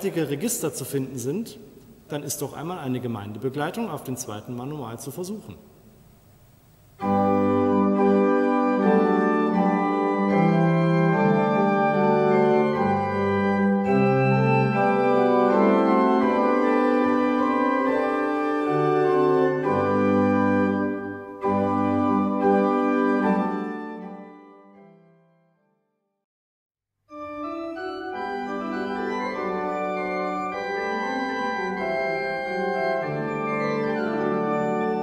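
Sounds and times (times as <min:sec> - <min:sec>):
pipe organ playing chords: 0:06.8 - 0:25.2, 0:27.1 - 0:35.0.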